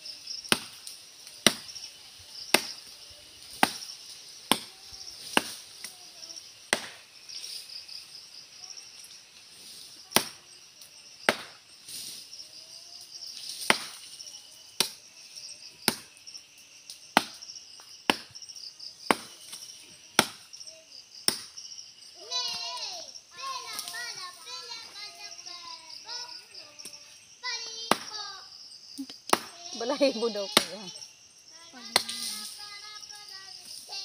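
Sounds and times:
insects buzzing: 0.0 - 34.0
machete chopping wood: 0.5 - 0.8, 1.4 - 1.7, 2.5 - 2.8, 3.5 - 3.9, 4.5 - 5.6, 6.7 - 7.0, 10.1 - 10.4, 11.3 - 11.6, 13.6 - 14.0, 15.8 - 16.1, 17.2 - 17.4, 18.1 - 18.4, 19.1 - 20.5, 21.2 - 21.6, 27.9 - 28.1, 29.3 - 29.6.

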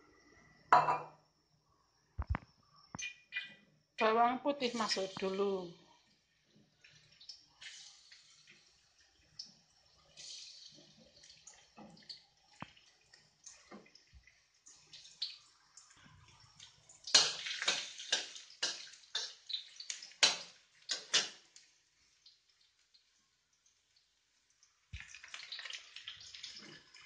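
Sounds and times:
garlic sizzling in hot oil: 4.5 - 27.0
metal spatula scraping wok: 4.6 - 5.4.

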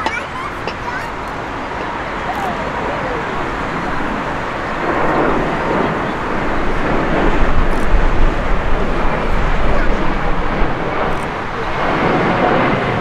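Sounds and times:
jet engine rushing: 0.0 - 13.0.

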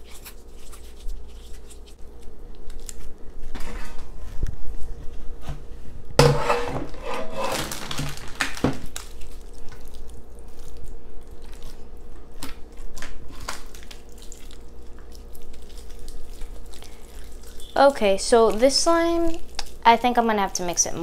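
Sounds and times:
metal pan clattering: 6.2 - 7.7
slime squelching: 7.4 - 21.0.

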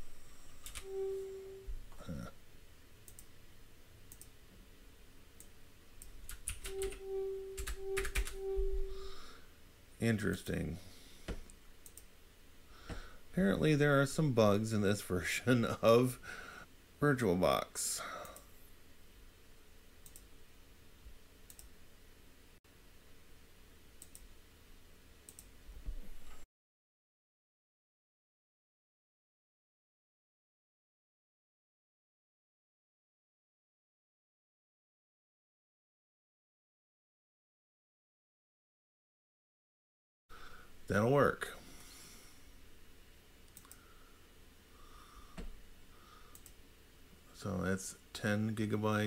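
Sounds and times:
mid-pitched hum: 0.0 - 26.4
keyboard typing clicks: 0.6 - 1.2, 3.1 - 3.3, 4.1 - 4.3, 5.4 - 9.0, 11.8 - 12.1, 21.5 - 21.7, 24.0 - 24.3, 46.3 - 46.6.

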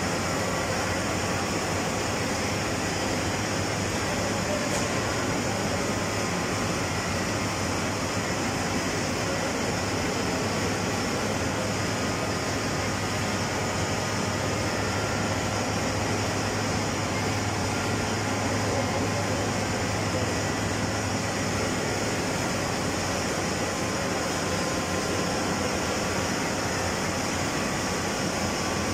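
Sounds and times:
generator machinery humming: 0.0 - 28.9.

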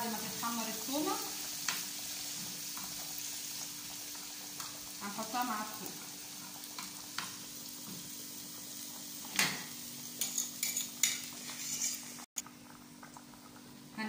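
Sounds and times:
garlic sizzling in a pan: 0.0 - 14.0
metal spoon scraping a pan: 10.2 - 12.3.

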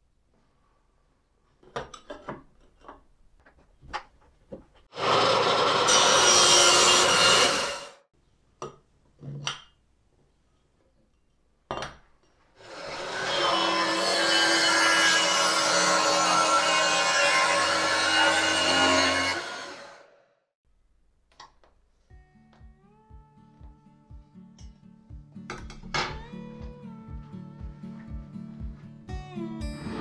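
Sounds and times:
angle grinder cutting metal: 5.0 - 8.0, 12.6 - 20.1.

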